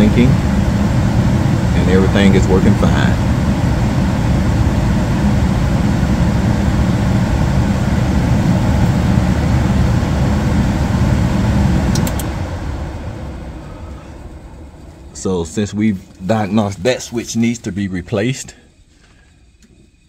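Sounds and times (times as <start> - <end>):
furnace blower running: 0.0 - 20.0
safety switch clicks: 11.9 - 12.3.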